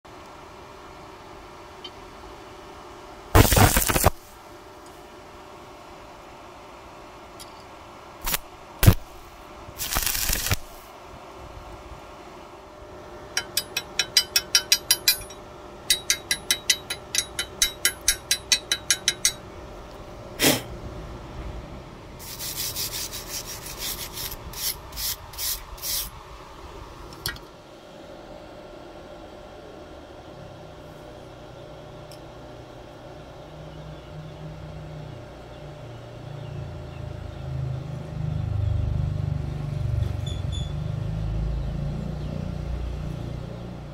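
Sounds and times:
tapping on steel: 13.3 - 19.4
scraping on steel: 22.2 - 26.1.

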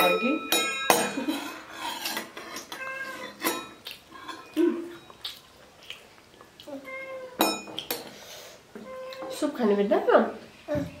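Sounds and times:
metal spoons clinking on bowls: 0.0 - 5.2, 7.4 - 8.1.

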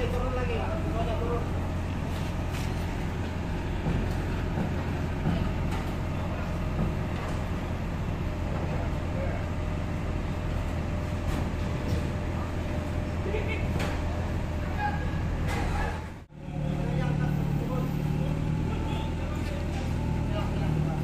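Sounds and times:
forklift engine idling: 0.0 - 21.0
knocks and clanks: 2.6 - 7.6.

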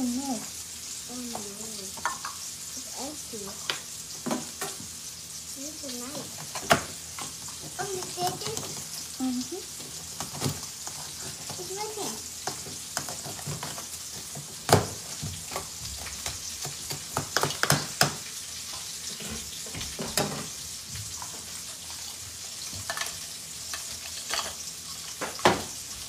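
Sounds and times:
steak sizzling in a pan: 0.0 - 26.0.

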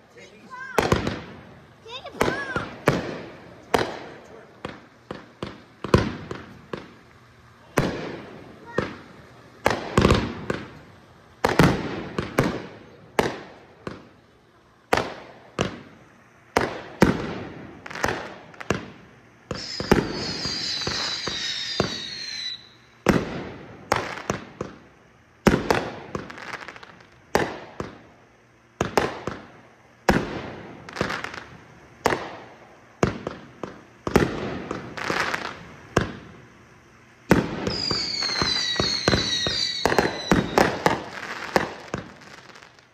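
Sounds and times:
fireworks bangs: 0.0 - 42.9
high whistle falling in pitch: 19.5 - 22.8, 37.7 - 40.6.

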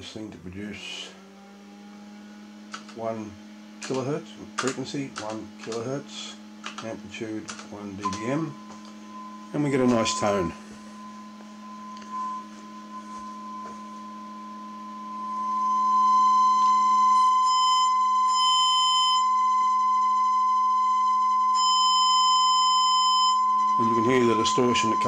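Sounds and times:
harsh distorted tone: 2.8 - 17.6, 23.6 - 25.0
sine tone from loudspeaker: 5.8 - 25.0.

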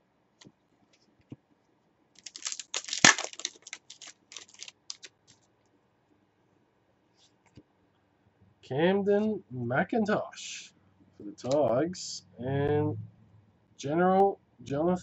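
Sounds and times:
cards clicking and rustling: 2.2 - 5.4.

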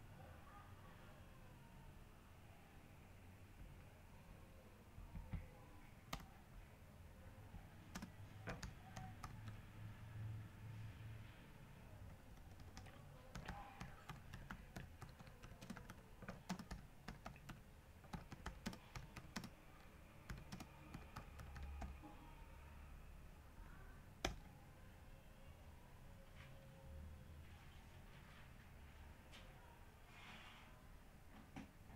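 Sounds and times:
computer keyboard typing: 5.1 - 6.4, 7.8 - 9.6, 12.1 - 22.1, 24.2 - 24.5.

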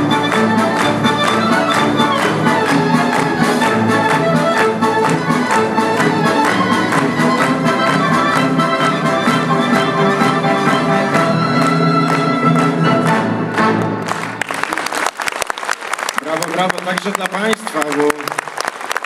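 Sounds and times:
accordions: 0.0 - 14.0
violins: 0.0 - 14.7
brass: 0.0 - 14.8
orchestra playing: 0.0 - 15.4.

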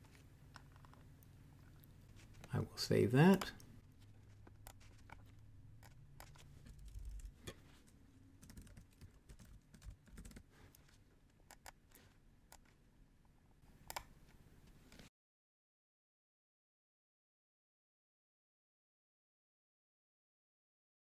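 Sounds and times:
mouse clicks: 4.4 - 7.3, 11.5 - 11.8, 13.8 - 14.1.

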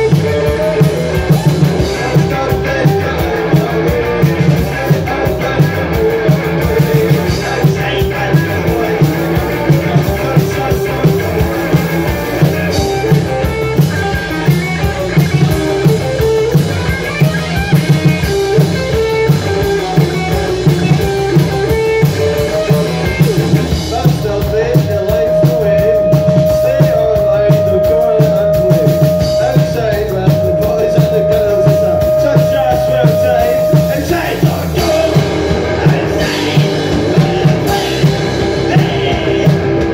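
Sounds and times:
live rock band playing: 0.0 - 39.9
held high note: 25.0 - 35.2.

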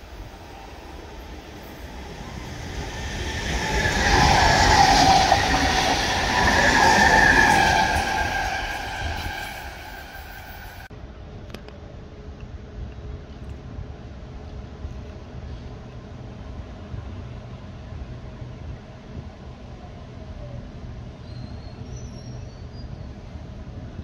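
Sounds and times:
electric train passing: 0.0 - 10.9
train whine: 0.0 - 11.3.

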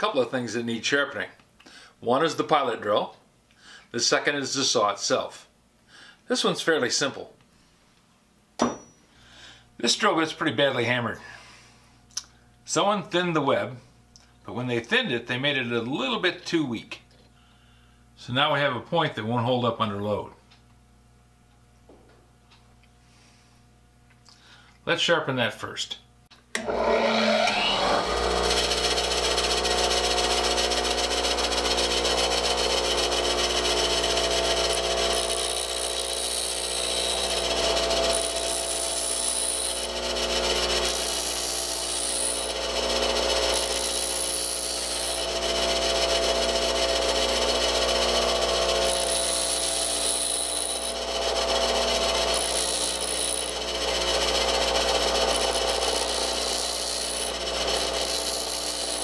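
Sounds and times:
bench grinder whine and hum: 26.5 - 59.0
drill bit grinding hiss: 27.0 - 59.0.

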